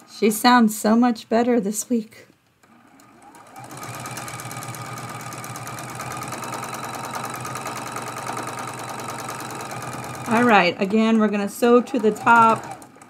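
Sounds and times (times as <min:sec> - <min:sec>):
sewing machine stitching: 0:02.6 - 0:13.0.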